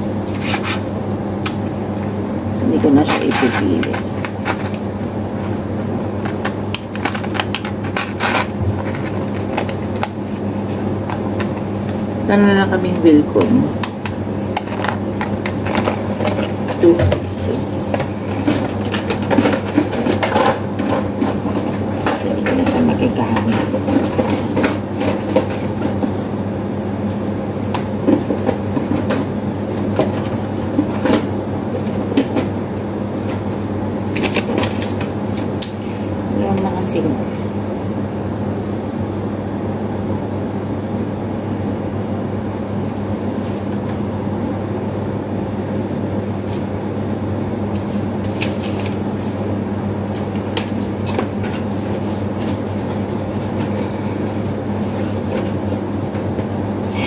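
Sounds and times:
steady low hum: 0:00.0 - 0:57.0
paper and packaging rustling: 0:03.0 - 0:04.8, 0:06.3 - 0:12.1, 0:14.4 - 0:26.3, 0:34.1 - 0:35.6, 0:47.7 - 0:49.5, 0:50.1 - 0:56.6.

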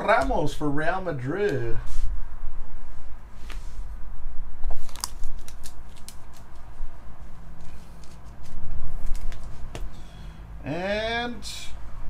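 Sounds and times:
trading cards clicking and snapping: 0:04.7 - 0:06.7, 0:07.6 - 0:09.9.

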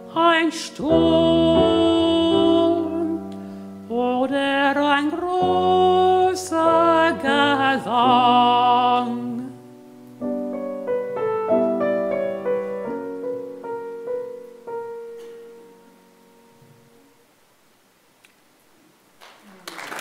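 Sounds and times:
man singing with vibrato: 0:00.0 - 0:03.2, 0:03.9 - 0:09.6
grand piano: 0:00.0 - 0:17.4.

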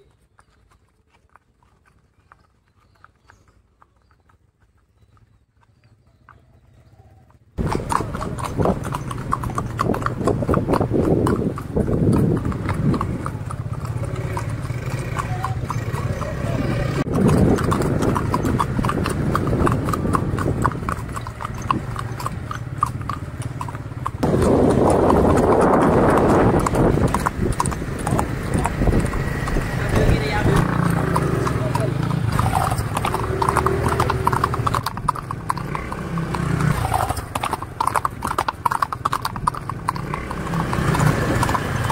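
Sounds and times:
hooves clip-clopping on pavement: 0:00.0 - 0:41.9
loud rushing noise: 0:24.2 - 0:30.4.

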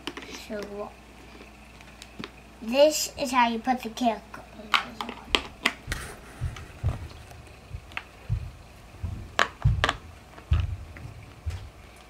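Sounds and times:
soft low thumps: 0:05.3 - 0:11.9.

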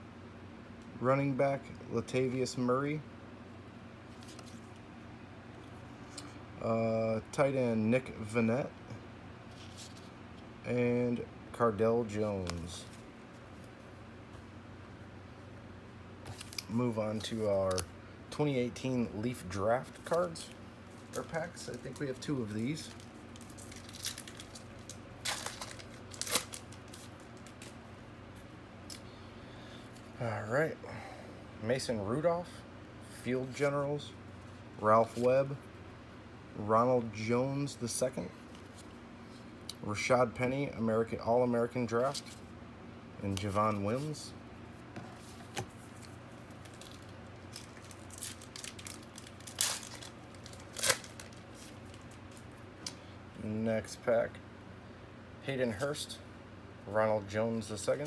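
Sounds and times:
wrapper tearing and crinkling: 0:22.8 - 0:27.8, 0:46.6 - 0:52.4.

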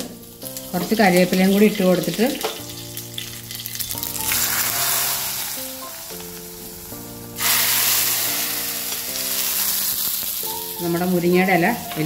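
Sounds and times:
spices sizzling in hot oil: 0:00.0 - 0:12.0
loud sizzle of oil poured into curry: 0:00.4 - 0:10.9.

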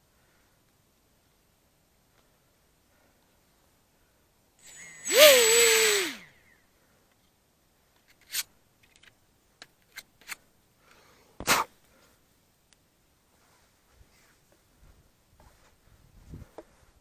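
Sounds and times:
electric motor and propeller whirring: 0:04.6 - 0:06.3.

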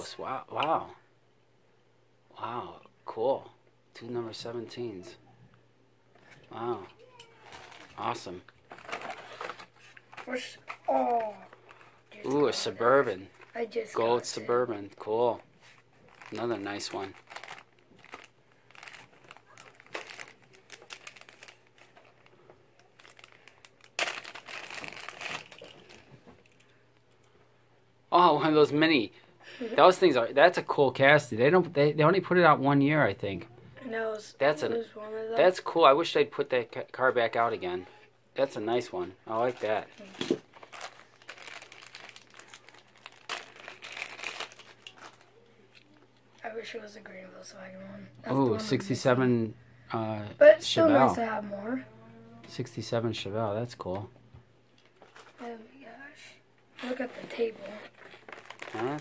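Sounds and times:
packaging crinkling: 0:07.3 - 0:08.0, 0:08.6 - 0:12.4, 0:16.0 - 0:26.7, 0:39.4 - 0:45.5, 0:54.8 - 0:55.4, 0:57.1 - 0:59.0.

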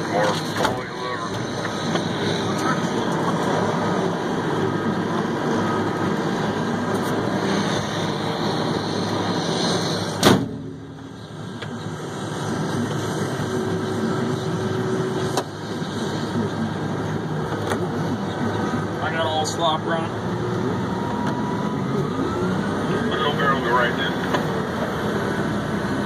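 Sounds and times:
truck diesel engine running: 0:00.0 - 0:26.0.

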